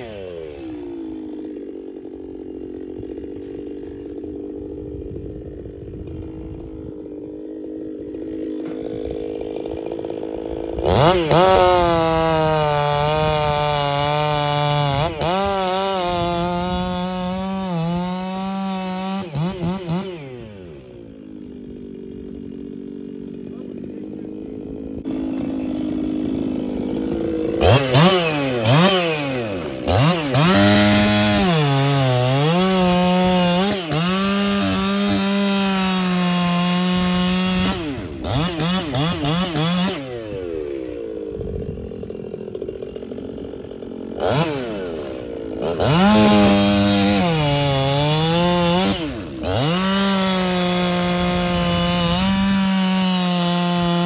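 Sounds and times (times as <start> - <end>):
chainsaw cutting log: 0.0 - 54.0.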